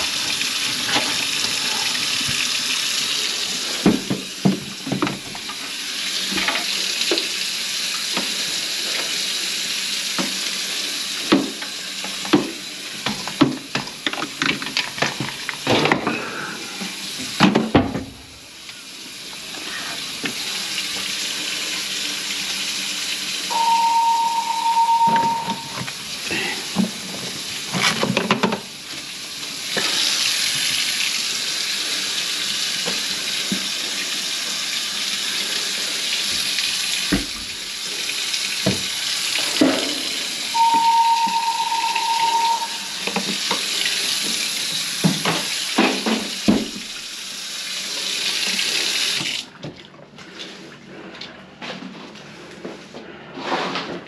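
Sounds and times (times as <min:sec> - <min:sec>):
faucet running into sink: 0:16.7 - 0:49.8
steady high tone: 0:23.5 - 0:25.8, 0:40.5 - 0:43.2.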